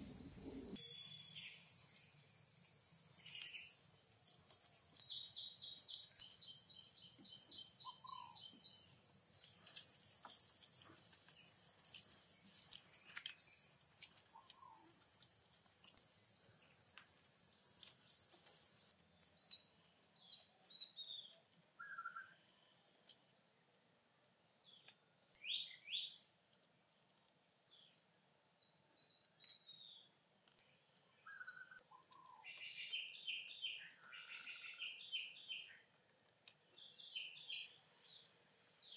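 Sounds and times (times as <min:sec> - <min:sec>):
chorus of forest insects: 0:00.0 - 0:38.9
bird chirps: 0:05.0 - 0:09.0, 0:14.2 - 0:14.9, 0:31.2 - 0:35.8.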